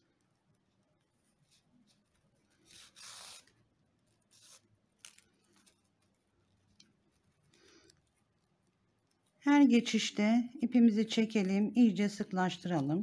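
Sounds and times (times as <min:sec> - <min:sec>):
cord rasping through stitches: 0:00.2 - 0:09.5.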